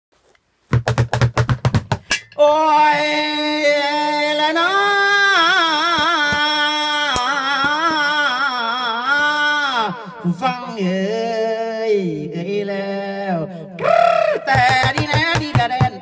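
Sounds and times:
rapid run of knocks: 0:00.7 - 0:02.1
man singing long held note: 0:02.4 - 0:16.0.

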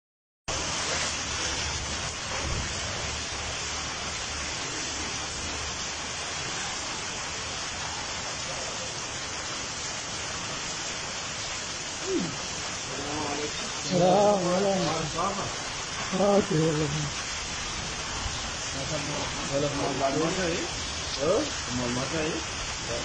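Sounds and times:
heavy rain on standing water: 0:00.5 - 0:23.0.

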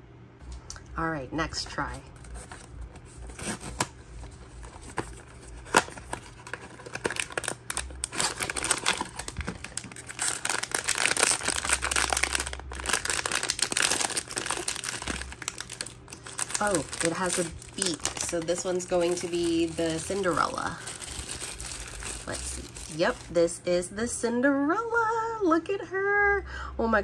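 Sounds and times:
foil bag crinkling and tearing: 0:02.1 - 0:23.4.

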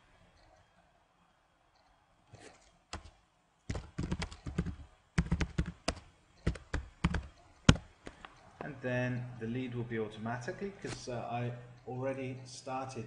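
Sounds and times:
keyboard typing: 0:02.9 - 0:08.4.

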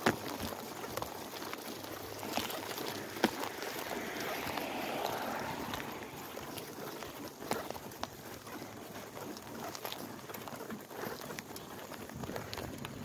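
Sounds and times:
bicycle tyres rolling on asphalt: 0:00.0 - 0:13.0.

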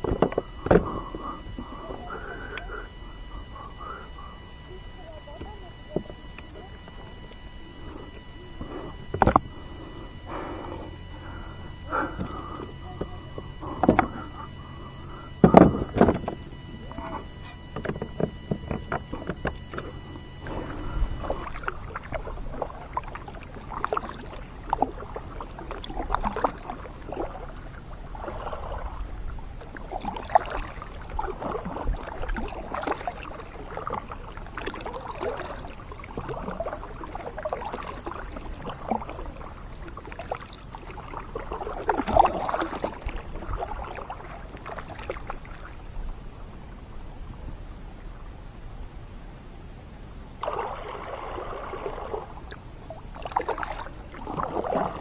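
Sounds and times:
paddle splashing through water: 0:50.4 - 0:52.4, 0:53.1 - 0:55.0.

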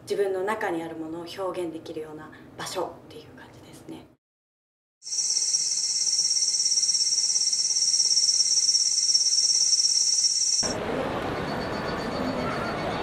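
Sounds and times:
cicadas buzzing: 0:05.1 - 0:10.7.

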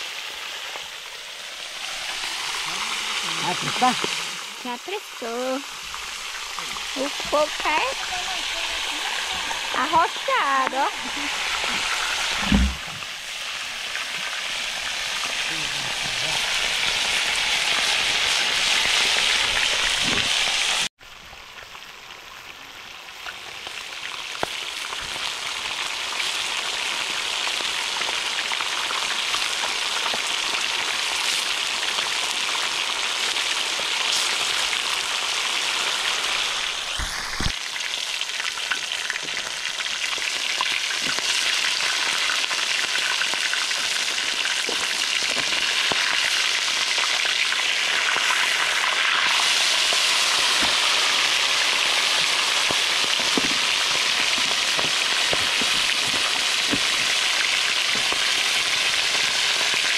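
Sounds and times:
fish sizzling in hot oil: 0:00.0 - 0:59.9.

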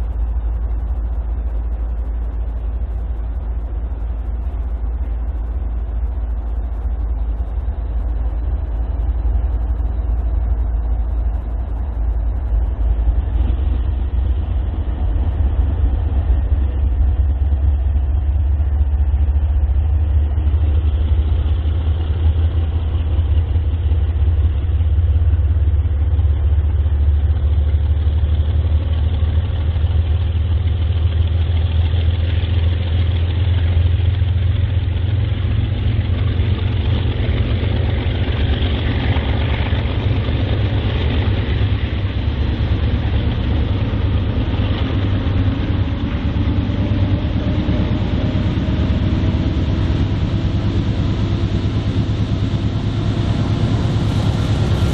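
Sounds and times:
diesel locomotive rumble: 0:00.0 - 0:54.9
engine note rising in pitch: 0:42.3 - 0:54.9.

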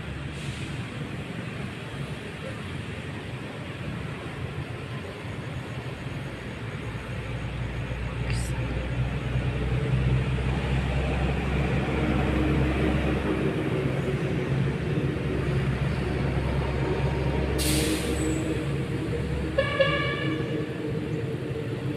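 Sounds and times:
burst of hiss: 0:17.6 - 0:18.5
horn toot: 0:19.5 - 0:20.6.

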